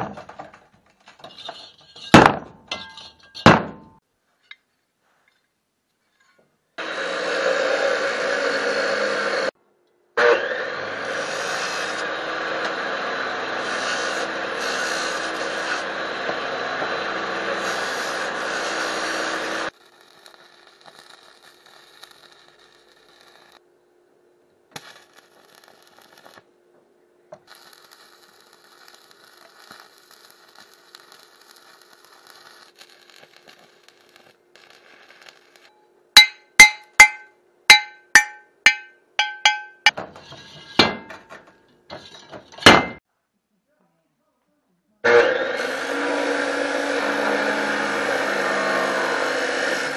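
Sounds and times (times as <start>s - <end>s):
chop saw cutting steel: 10.2s - 21.5s, 45.1s - 49.9s
arc welding crackle: 11.0s - 23.6s, 24.7s - 26.5s, 27.4s - 35.8s.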